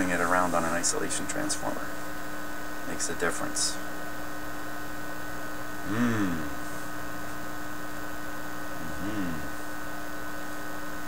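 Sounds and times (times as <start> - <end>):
speaker hiss: 0.0 - 2.1
amplifier mains hum and buzz: 0.0 - 11.0
man murmuring: 5.8 - 6.6, 8.8 - 9.7.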